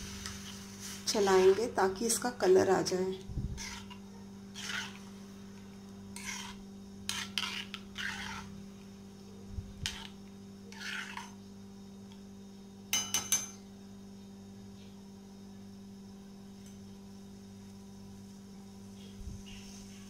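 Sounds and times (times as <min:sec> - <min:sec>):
metal spoon scraping a pan: 0:00.2 - 0:01.8, 0:03.6 - 0:05.2, 0:06.1 - 0:08.6, 0:09.8 - 0:11.4
spoon clinking against pan: 0:12.9 - 0:13.6.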